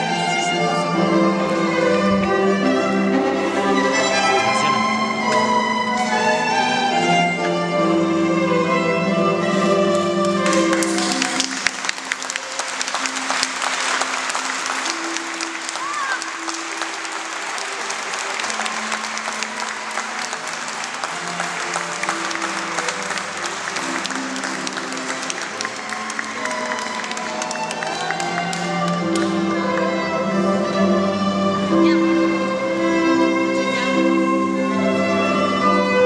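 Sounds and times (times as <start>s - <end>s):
bowed string melody: 0.0s - 36.0s
crowd applause: 9.6s - 30.2s.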